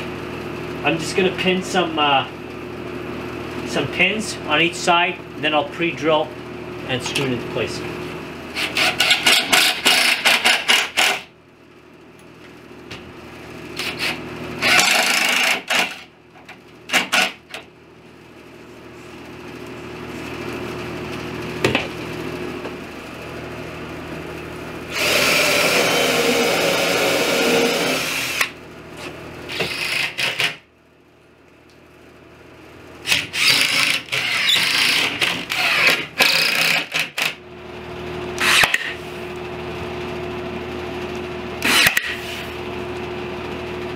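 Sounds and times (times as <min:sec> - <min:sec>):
cordless drill driving screws: 0:08.6 - 0:11.2, 0:13.8 - 0:16.0, 0:24.9 - 0:28.5, 0:29.5 - 0:30.5, 0:33.1 - 0:37.3, 0:41.6 - 0:42.0.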